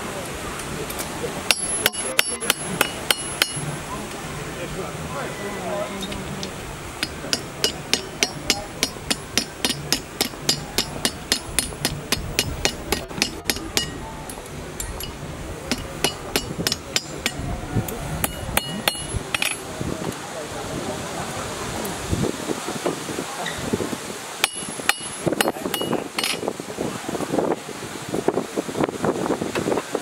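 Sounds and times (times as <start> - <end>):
hammer striking steel on anvil: 1.5 - 3.8, 6.1 - 14.2, 14.8 - 17.5, 18.2 - 19.6, 24.4 - 26.4.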